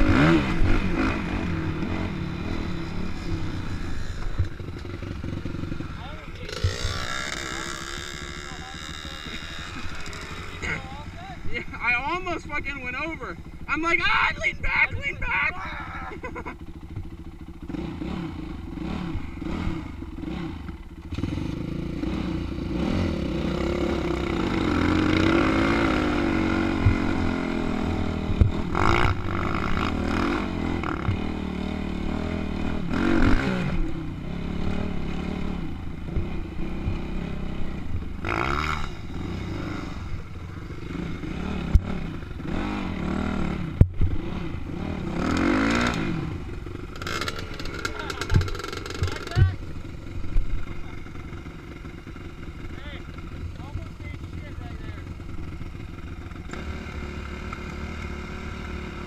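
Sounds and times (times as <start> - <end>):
dirt bike engine revving: 0.0 - 59.0
bike knocks and rattles: 47.0 - 49.6.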